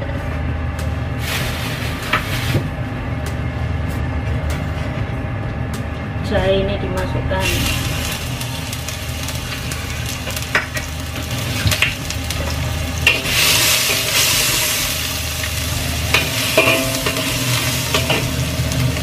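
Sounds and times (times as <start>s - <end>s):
low hum: 0.0s - 19.0s
food sizzling in oil: 7.4s - 19.0s
spatula scraping wok: 16.0s - 18.9s.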